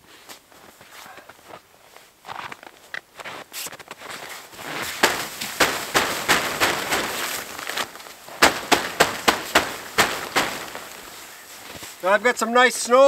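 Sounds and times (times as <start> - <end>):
hand slapping tent canvas: 3.6 - 12.0.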